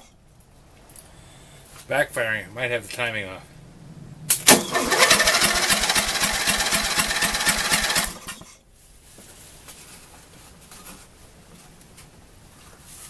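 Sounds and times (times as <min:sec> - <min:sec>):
mower engine backfiring pops: 0:04.3 - 0:08.4.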